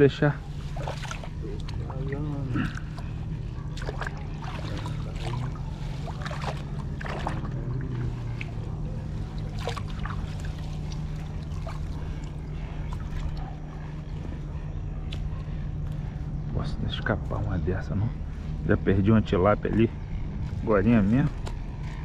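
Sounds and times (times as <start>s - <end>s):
steady low hum: 0.0s - 22.0s
water dripping and splashing: 0.5s - 13.5s.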